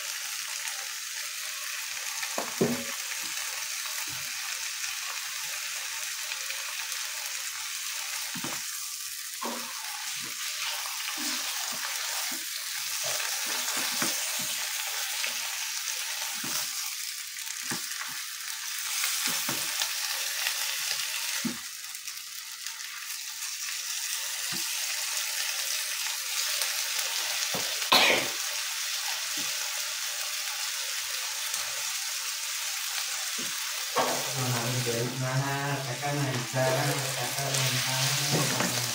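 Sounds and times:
vegetables sizzling in oil: 0.0s - 38.9s
spatula knocking and scraping wok: 33.4s - 34.6s, 37.5s - 38.9s.

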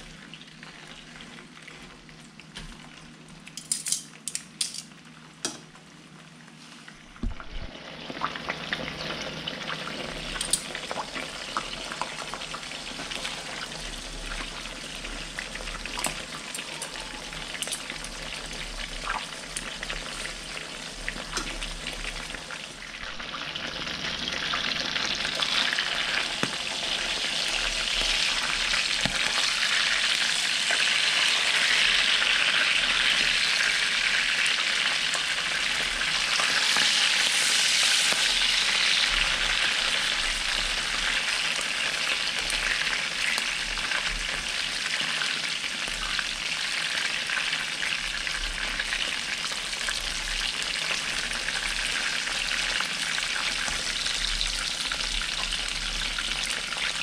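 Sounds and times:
oil sizzling around frying fish: 0.0s - 57.0s
metal tongs clicking on pan: 3.5s - 5.7s, 10.4s - 10.7s.

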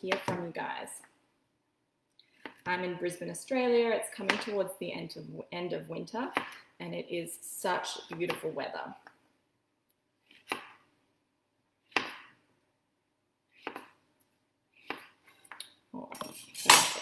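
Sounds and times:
knife chopping zucchini: 6.2s - 6.7s, 13.6s - 14.0s, 14.8s - 15.2s.

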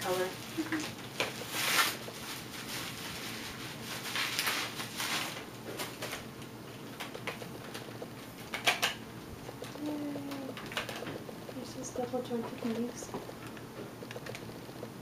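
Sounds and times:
bubble wrap crinkling: 0.0s - 6.3s.

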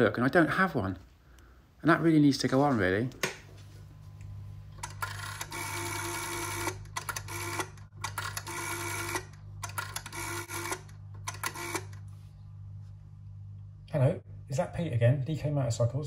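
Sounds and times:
rotary dial whirring and clicking: 4.8s - 12.1s.

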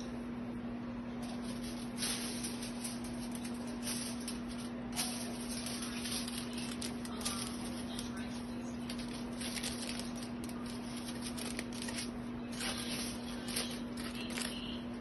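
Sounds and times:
steady hum: 0.0s - 15.0s
foil crinkling and rustling: 1.2s - 14.9s.

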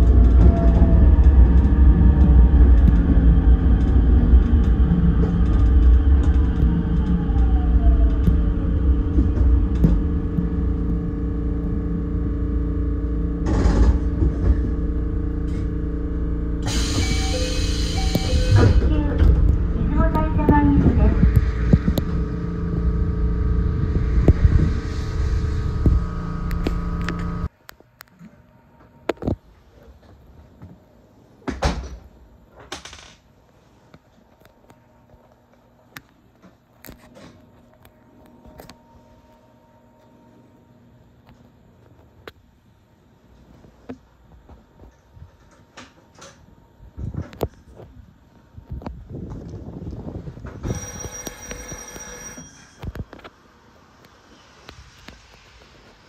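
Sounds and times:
electric train rumbling: 0.0s - 27.5s, 42.7s - 56.0s.

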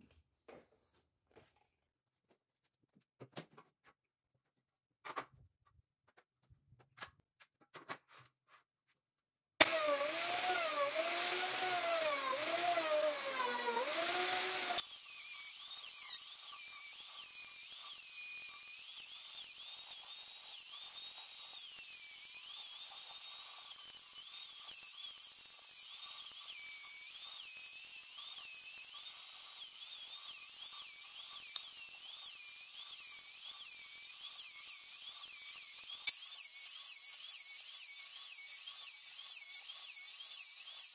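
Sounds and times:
electric router motor whine: 9.6s - 40.9s.

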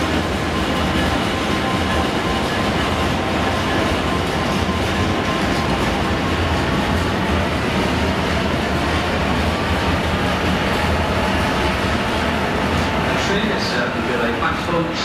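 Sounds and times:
freight train wheels on rails: 0.0s - 15.0s.

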